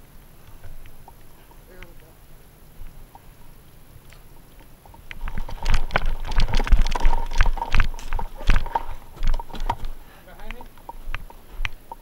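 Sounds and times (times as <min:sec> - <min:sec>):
running footsteps: 0:04.2 - 0:12.0
wind buffeting microphone: 0:04.3 - 0:12.0
gear rattling: 0:04.8 - 0:10.0.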